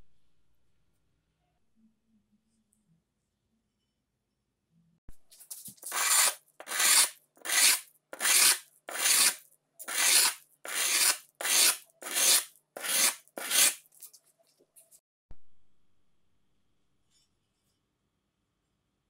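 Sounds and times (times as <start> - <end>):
knife blade rasping on sandpaper: 5.4 - 14.1.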